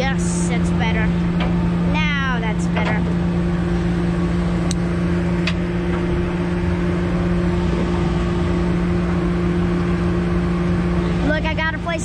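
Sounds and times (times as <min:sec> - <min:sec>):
boat engine droning: 0:00.0 - 0:12.0.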